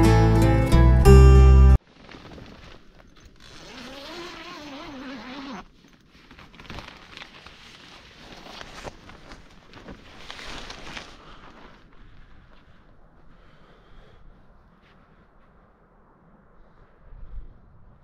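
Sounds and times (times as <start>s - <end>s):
tent zipper being pulled open: 1.9s - 11.7s.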